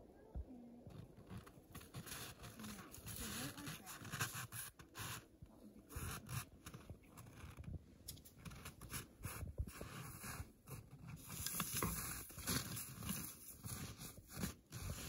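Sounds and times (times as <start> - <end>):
scraping and rustling brush: 0.9 - 5.3, 8.3 - 15.0.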